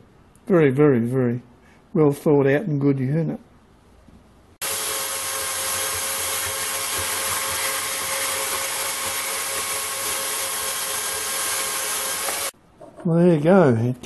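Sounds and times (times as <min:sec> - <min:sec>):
band saw cutting metal tube: 0:04.6 - 0:12.6.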